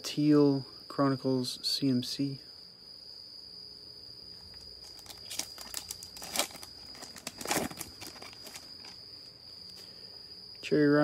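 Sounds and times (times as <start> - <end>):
cricket trilling: 0.0 - 11.0
plastic wrapper crinkling and tearing: 4.7 - 9.0.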